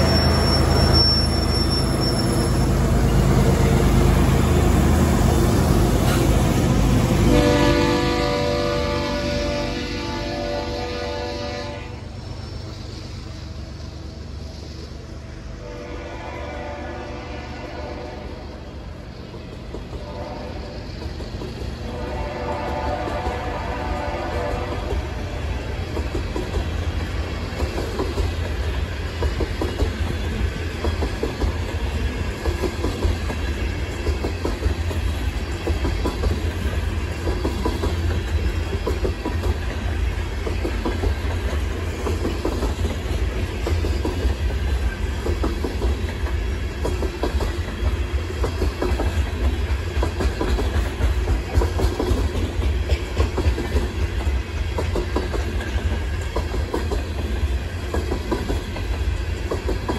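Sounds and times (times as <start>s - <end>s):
low train rumble: 0.0s - 59.9s
train wheels clacking over rail joints: 19.2s - 59.9s.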